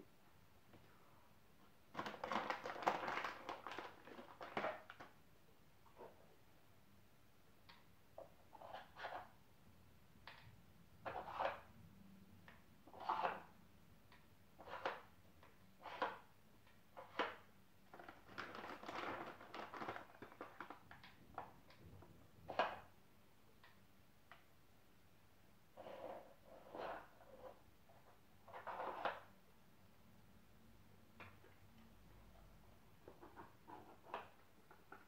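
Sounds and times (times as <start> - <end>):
small clicks and rustling: 17.1 - 22.8.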